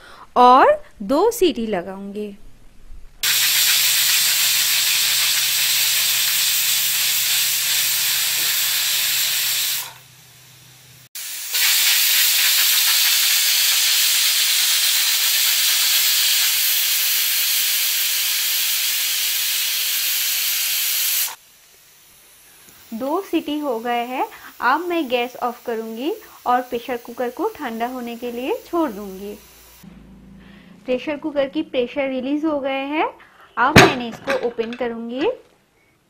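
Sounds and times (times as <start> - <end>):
pressure cooker whistle hissing: 3.2 - 10.5, 11.2 - 21.4, 22.2 - 29.8.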